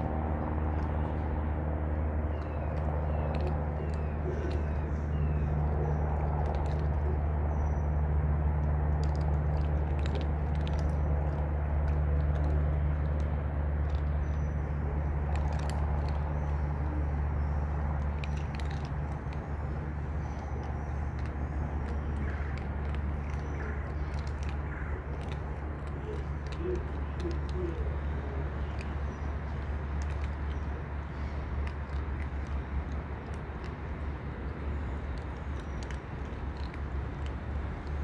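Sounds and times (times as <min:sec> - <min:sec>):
cats chewing dry food: 0:00.0 - 0:38.0
low machine hum: 0:00.0 - 0:38.0.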